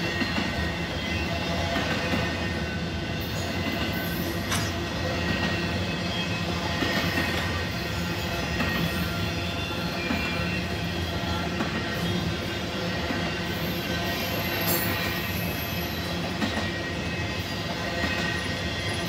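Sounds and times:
train wheels rumbling on rail: 0:00.0 - 0:19.0
high wheel squeal: 0:13.4 - 0:19.0.

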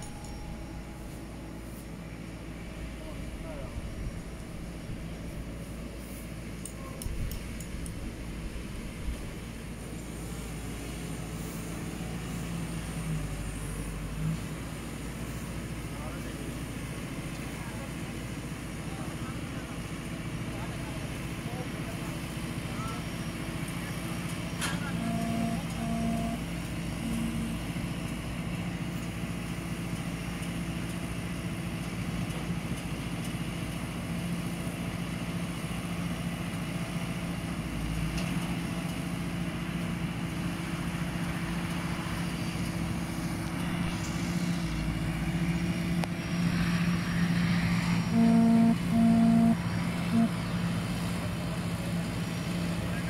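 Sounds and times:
tractor diesel engine running: 0:00.0 - 0:53.0
pitched beeps: 0:25.0 - 0:26.4, 0:48.1 - 0:50.4.

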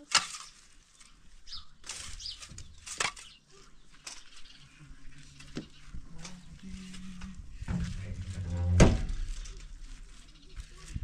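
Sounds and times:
metal shovel scraping gravel: 0:00.0 - 0:04.4.

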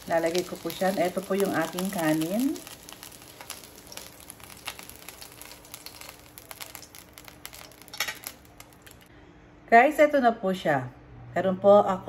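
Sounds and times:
hot oil crackling and sizzling: 0:00.0 - 0:09.1.

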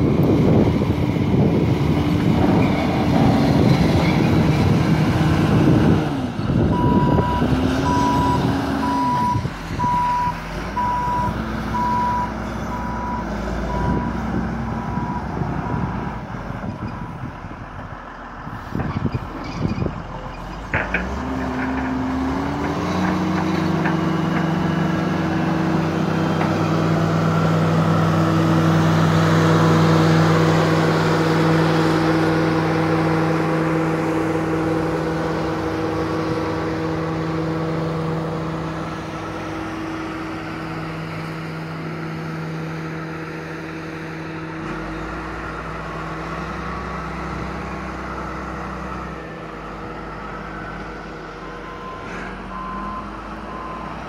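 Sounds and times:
diesel engine running: 0:00.0 - 0:54.0
reversing alarm beeps: 0:06.7 - 0:14.2.

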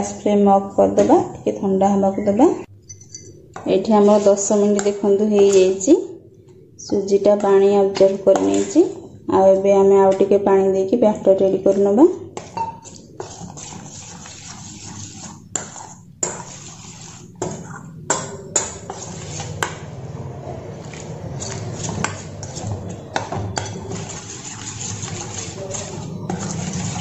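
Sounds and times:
spoon clinking on steel bowl: 0:02.8 - 0:03.4
spoon scraping wet batter: 0:03.6 - 0:10.3, 0:11.6 - 0:20.1, 0:20.7 - 0:27.0.

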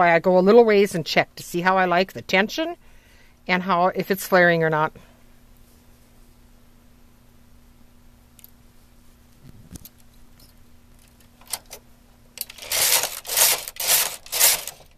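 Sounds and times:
knitting machine carriage sweeping: 0:12.4 - 0:14.9
tool clicking on metal needles: 0:12.4 - 0:14.9.

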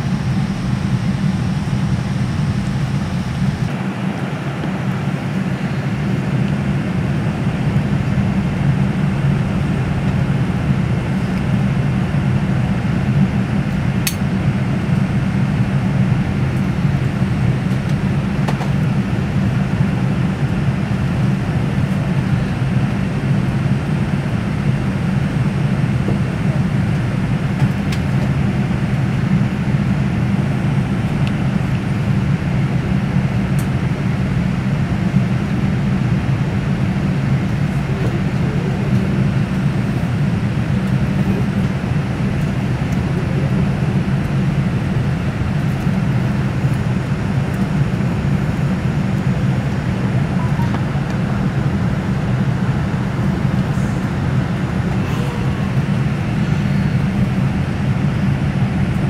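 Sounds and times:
jet engines rumbling in cabin: 0:00.0 - 0:59.0.

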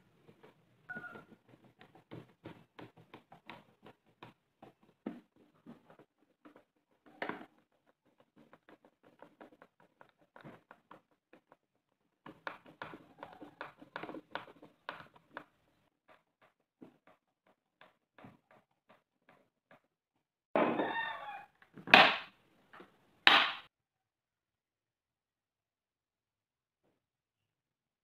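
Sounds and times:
screwdriver clicking and scratching: 0:00.3 - 0:11.6.

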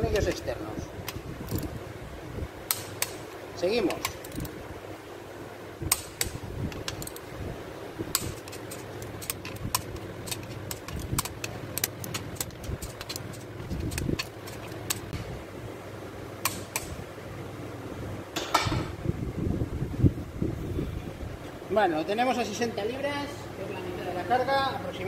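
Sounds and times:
low steady hum: 0:00.0 - 0:25.0
torque wrench clicks: 0:01.0 - 0:01.7, 0:03.9 - 0:04.5, 0:05.9 - 0:07.3, 0:08.1 - 0:15.2.

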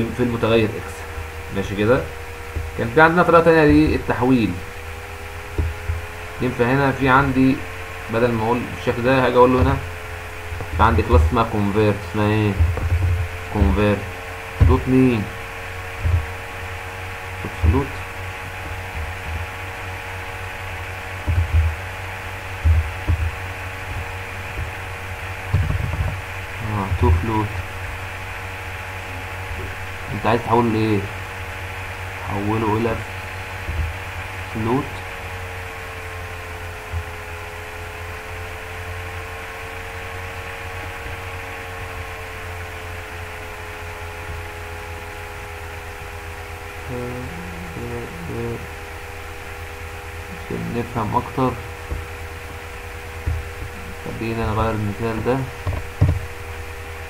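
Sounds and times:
buzzing tones: 0:00.0 - 0:57.0
electrical mains hum: 0:00.0 - 0:57.0
dull low thumps: 0:01.0 - 0:06.4, 0:09.4 - 0:32.2, 0:46.8 - 0:57.0.

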